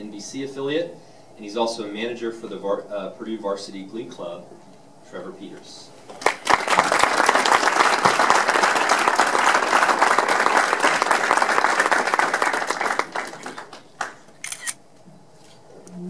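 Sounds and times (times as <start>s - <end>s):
audience applauding: 6.1s - 14.3s.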